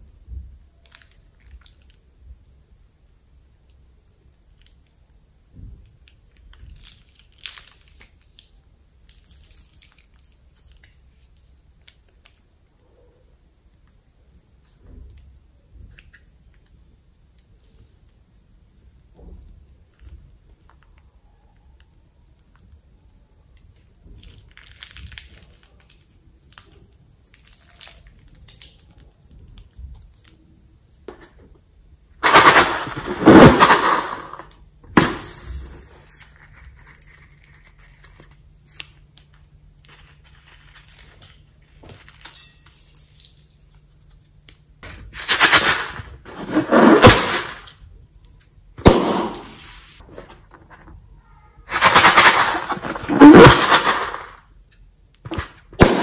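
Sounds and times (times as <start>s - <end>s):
slime squeezed out of balloons: 32.2s - 38.4s, 46.2s - 47.6s, 51.7s - 54.4s.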